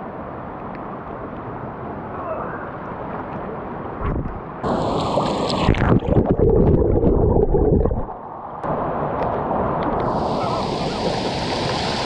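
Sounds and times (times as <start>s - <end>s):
stream rushing: 0.0s - 12.0s
splash into water: 4.8s - 6.3s
muffled underwater gurgle: 5.4s - 8.1s.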